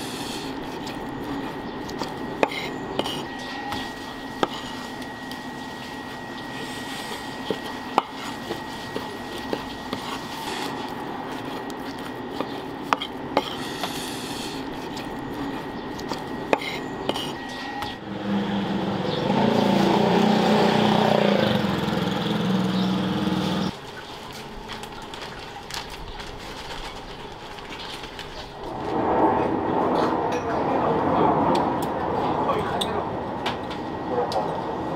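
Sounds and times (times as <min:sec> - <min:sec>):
steady high hum: 0:00.0 - 0:25.7, 0:28.4 - 0:34.9
outdoor ambience: 0:00.0 - 0:34.9
low drone: 0:13.4 - 0:23.7, 0:28.6 - 0:34.9.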